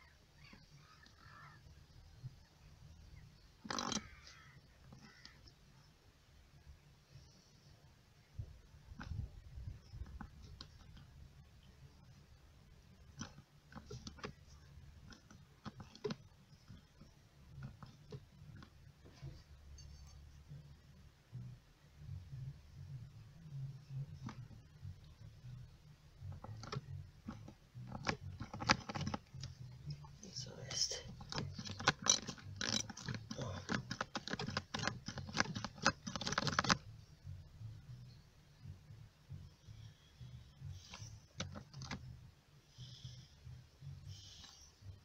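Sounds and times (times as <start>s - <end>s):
hand pump clicking: 3.7s - 4.2s, 26.4s - 29.5s, 31.1s - 36.8s.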